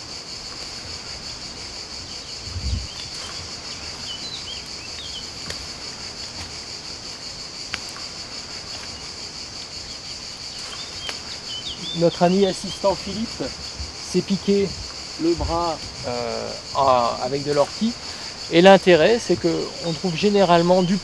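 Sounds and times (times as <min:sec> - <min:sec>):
high-pitched insect chorus: 0:00.0 - 0:21.0
bird chirps: 0:02.1 - 0:05.6, 0:09.8 - 0:13.6.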